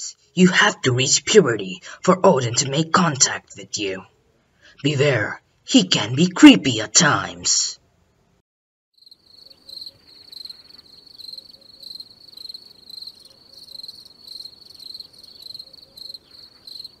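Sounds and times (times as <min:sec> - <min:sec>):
crickets chirping: 0:09.0 - 0:17.0.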